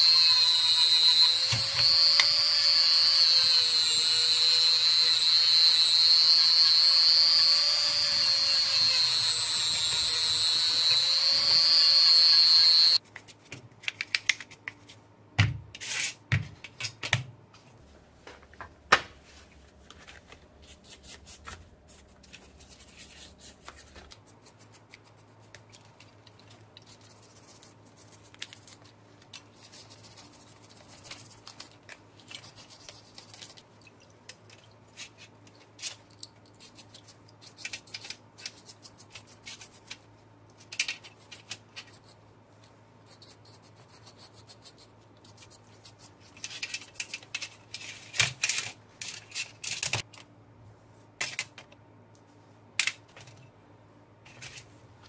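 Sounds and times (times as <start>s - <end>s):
paintbrush bristles scrubbing: 29.5s - 33.7s
plastic parts clicking and knocking: 46.4s - 50.3s.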